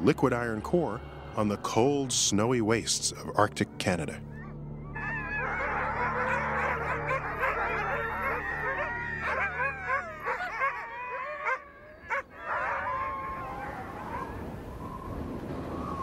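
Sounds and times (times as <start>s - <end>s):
huskies howling and yipping: 4.3s - 15.2s.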